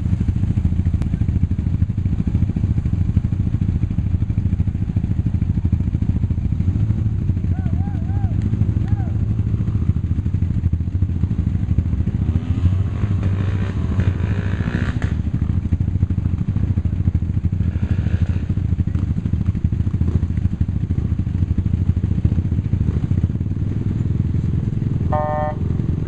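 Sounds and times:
vehicle engine idling: 0:00.0 - 0:12.0, 0:18.5 - 0:26.0.

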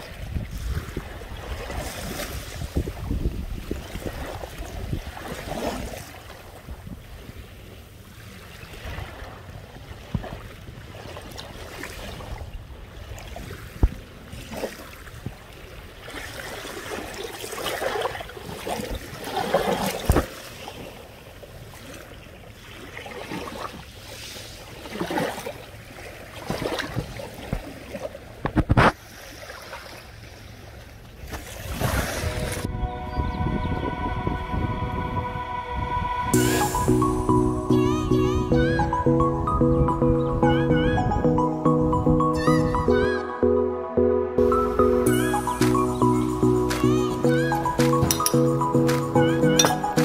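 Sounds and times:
waves lapping on pebbles: 0:00.0 - 0:32.7.

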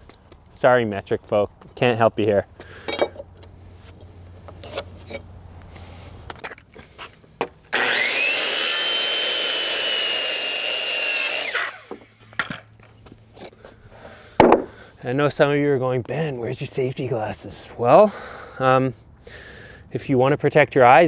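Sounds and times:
circular saw whine: 0:07.7 - 0:12.2
lumber knocking: 0:14.4 - 0:14.7.

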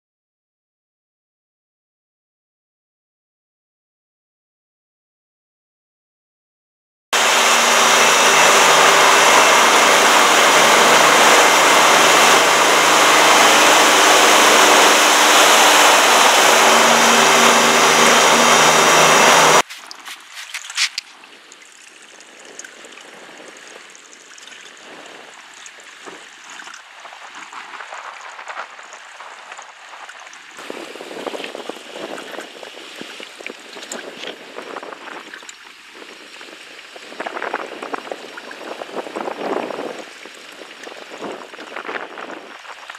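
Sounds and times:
loud rushing noise with hums: 0:07.2 - 0:19.7
small waves splashing: 0:07.2 - 0:42.9.

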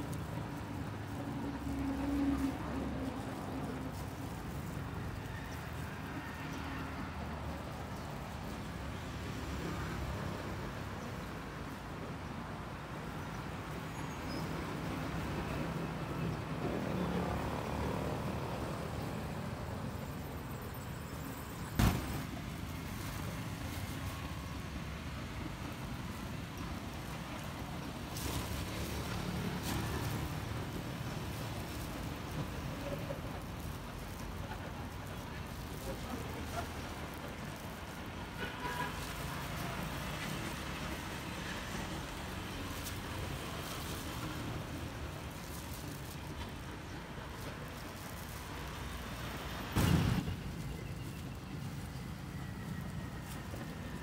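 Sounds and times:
road traffic rumble: 0:00.0 - 0:54.0
sharp knock: 0:21.8 - 0:22.3.

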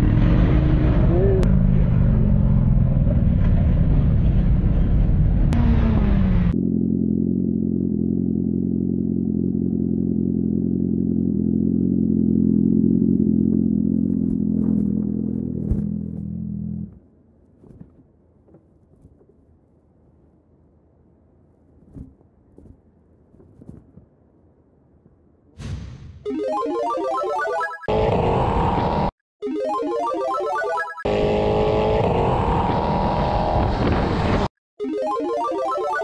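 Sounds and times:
motorcycle engine riding: 0:00.0 - 0:19.3
thump: 0:25.6 - 0:26.2.

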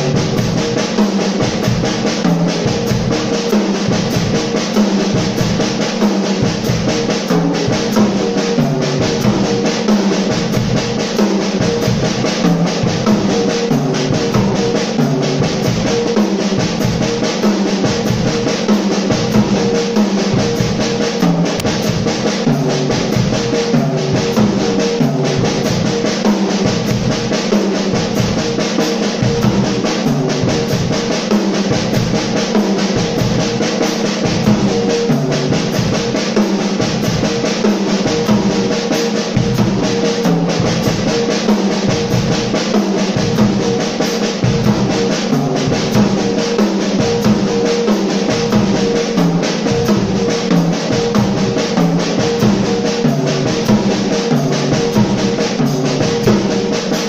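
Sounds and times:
bass drum: 0:00.0 - 0:57.0
cymbals: 0:00.0 - 0:57.0
pitched backing music: 0:00.0 - 0:57.0
snare drum strikes: 0:01.0 - 0:28.1.

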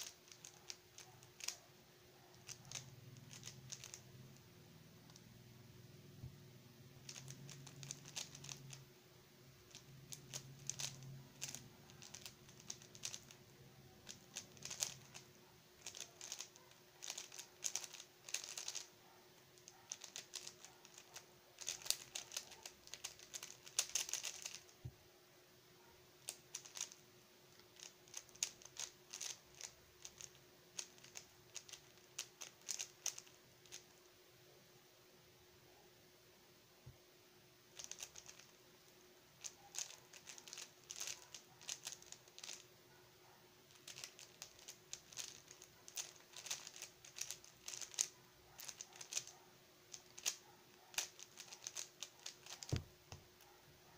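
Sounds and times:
plastic puzzle cube clacking: 0:00.0 - 0:01.6, 0:02.3 - 0:05.3, 0:07.0 - 0:08.9, 0:09.6 - 0:19.0, 0:19.6 - 0:24.7, 0:26.3 - 0:27.0, 0:27.6 - 0:33.9, 0:37.8 - 0:38.6, 0:39.4 - 0:42.7, 0:43.7 - 0:53.2.

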